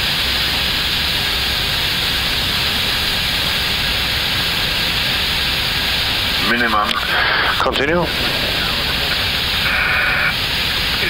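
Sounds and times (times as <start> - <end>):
rushing air hiss in cockpit: 0.0 - 11.0.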